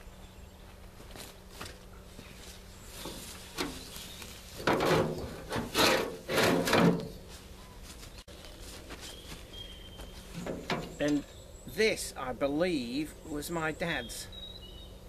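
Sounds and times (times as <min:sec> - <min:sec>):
shovel scraping compost: 0:01.2 - 0:09.2.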